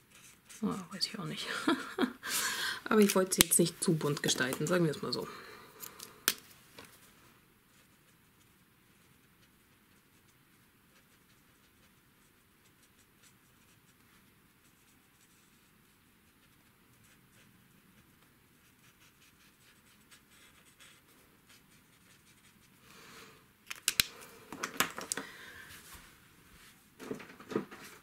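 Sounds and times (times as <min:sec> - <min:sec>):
marker scratching on card: 0:00.1 - 0:00.6, 0:07.7 - 0:22.7
marker clicks: 0:23.7 - 0:24.1.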